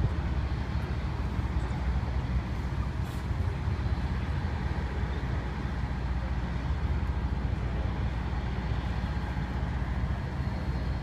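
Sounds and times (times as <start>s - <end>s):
road traffic rumble: 0.0s - 11.0s.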